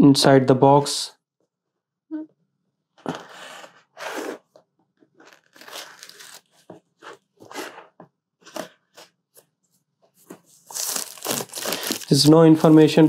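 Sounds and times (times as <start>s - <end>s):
cellophane tearing: 5.1s - 7.8s, 10.5s - 13.0s
craft knife slitting cellophane: 5.2s - 7.9s, 10.6s - 13.0s.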